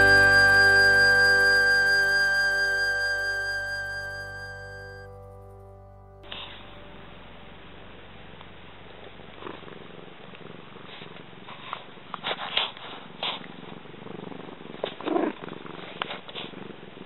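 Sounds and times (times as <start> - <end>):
cat purring: 9.1 - 17.0.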